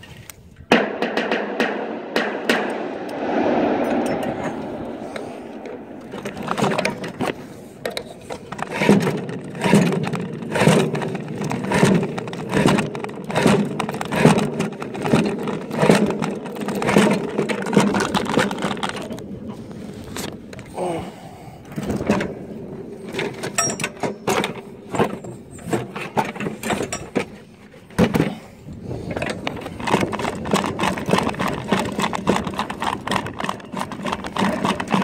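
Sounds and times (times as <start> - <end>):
rushing noise: 1.5 - 8.3.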